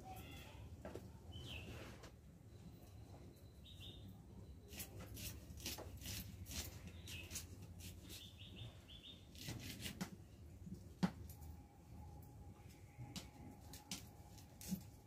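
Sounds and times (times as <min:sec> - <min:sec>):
birds chirping faintly: 0:00.0 - 0:09.8
knife peeling onion skins: 0:04.7 - 0:08.4, 0:09.3 - 0:10.2, 0:13.2 - 0:15.0.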